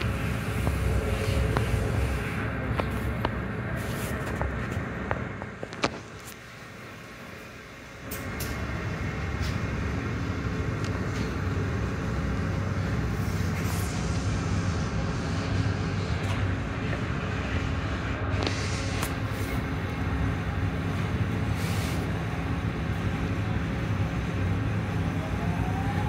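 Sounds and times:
low motor hum: 0.0s - 21.5s.

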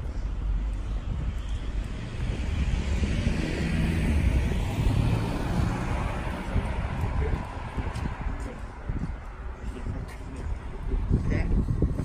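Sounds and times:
wind rumble on microphone: 0.0s - 12.0s
vehicle passing by: 1.6s - 9.1s.

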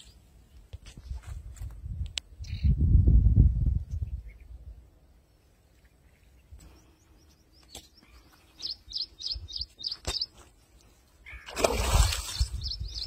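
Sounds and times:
small bird chirping: 5.7s - 10.5s, 12.2s - 13.0s.

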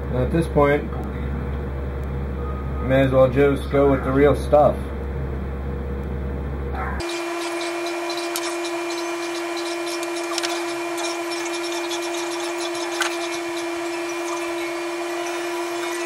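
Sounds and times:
wire clicking and rubbing: 7.0s - 15.0s
electric motor with air hiss: 7.0s - 16.0s.

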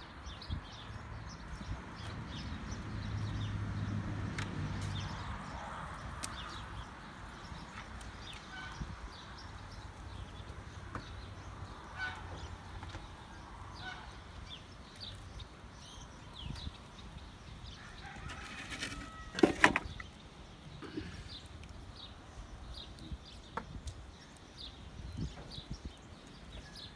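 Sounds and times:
small birds chirping: 0.0s - 26.9s.

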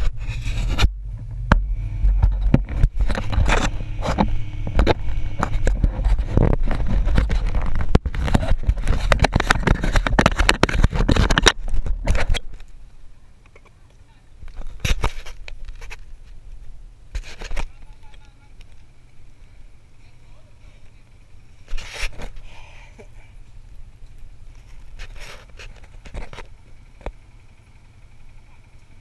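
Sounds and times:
fingers rubbing camera microphone: 0.0s - 0.9s, 2.0s - 12.5s
atv engine idling: 0.0s - 10.7s, 15.4s - 21.7s, 22.3s - 29.0s.

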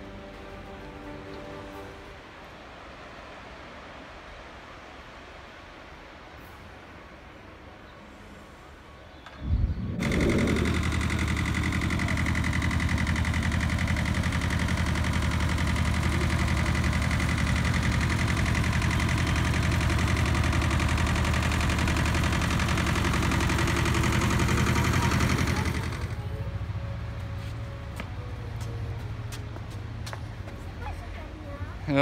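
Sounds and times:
tractor engine running: 9.6s - 30.8s.

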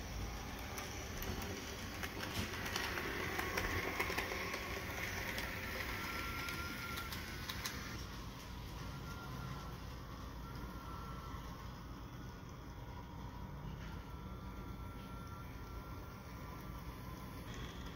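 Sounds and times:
model train motor whirring: 0.0s - 13.4s
model train wheel clicks: 0.5s - 8.0s.

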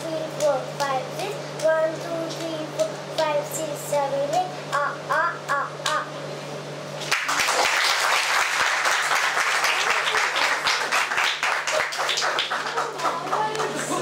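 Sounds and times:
audience applause: 7.1s - 14.0s.

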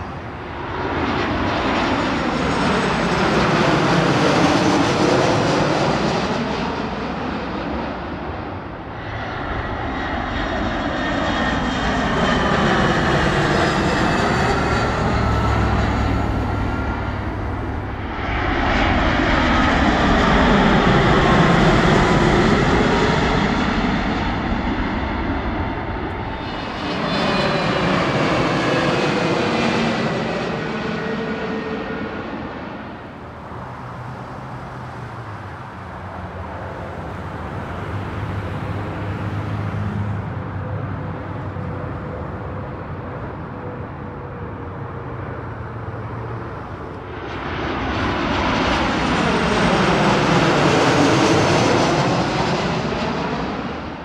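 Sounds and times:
jet engine whine falling in pitch: 0.0s - 33.7s, 40.1s - 54.0s
jet airliner passing overhead: 0.0s - 54.0s
steady engine sound: 1.6s - 47.3s.

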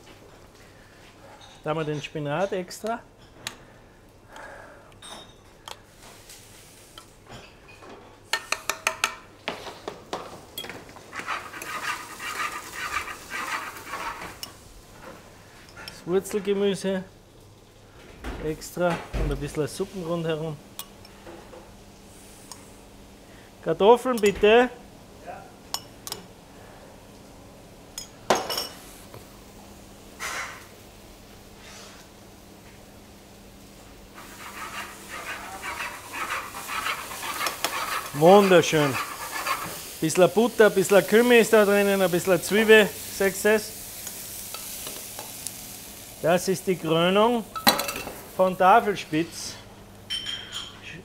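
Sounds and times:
spoon scraping and dishes clattering: 7.0s - 9.7s, 10.6s - 14.6s, 50.1s - 50.8s
metal spoon clinking steel dishes: 47.6s - 48.1s
spoon clinking porcelain dishes: 47.6s - 48.2s, 50.1s - 50.8s.

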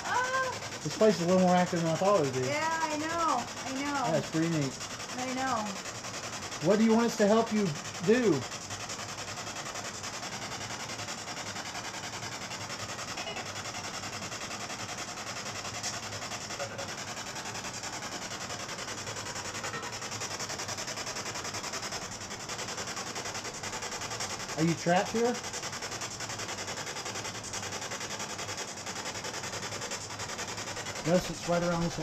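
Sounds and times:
chopping radio static: 6.6s - 8.4s.

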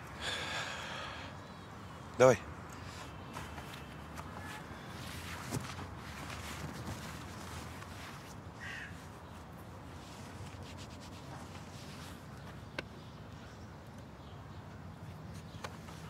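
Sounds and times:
faint rustling: 2.8s - 12.6s.

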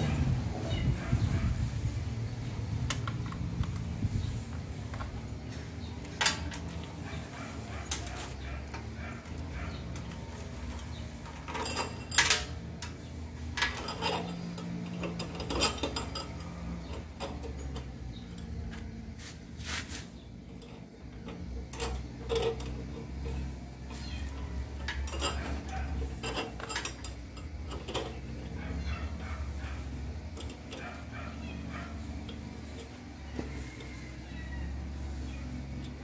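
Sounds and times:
chain and tools clinking: 6.0s - 18.8s, 20.4s - 36.0s.

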